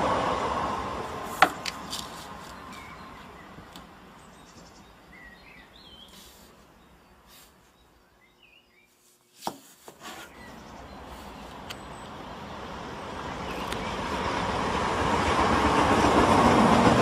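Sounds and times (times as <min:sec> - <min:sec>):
steady rushing noise: 0:00.0 - 0:04.3, 0:10.7 - 0:17.0
faint bird chirps: 0:02.4 - 0:09.2, 0:10.1 - 0:12.3.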